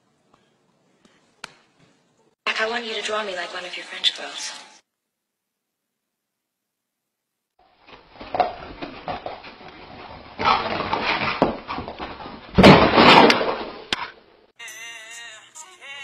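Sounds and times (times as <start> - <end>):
pets scuffling and thumping: 7.9 - 13.7.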